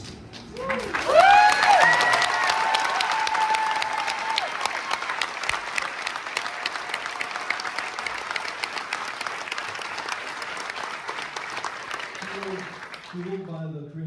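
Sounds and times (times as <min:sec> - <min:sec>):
audience applauding: 0:00.5 - 0:13.6.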